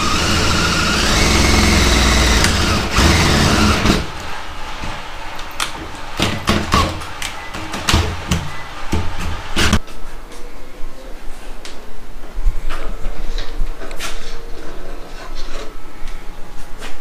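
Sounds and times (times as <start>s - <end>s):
power drill drilling into metal: 0.0s - 4.1s.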